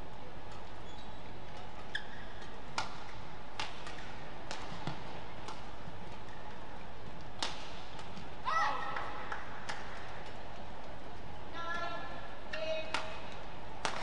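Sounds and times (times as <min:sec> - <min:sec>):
rackets striking shuttlecock: 0:02.7 - 0:05.7, 0:07.2 - 0:08.3, 0:12.9 - 0:14.0.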